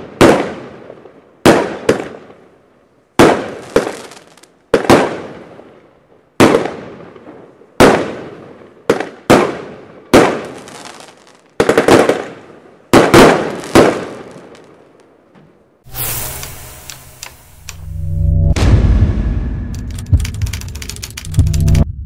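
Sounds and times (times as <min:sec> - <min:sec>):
firework bursts echoing: 0:06.4 - 0:14.8.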